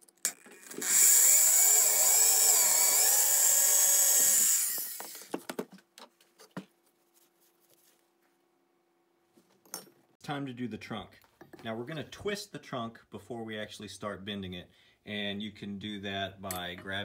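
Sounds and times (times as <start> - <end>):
electric drill screeching through metal: 0.3 - 5.3.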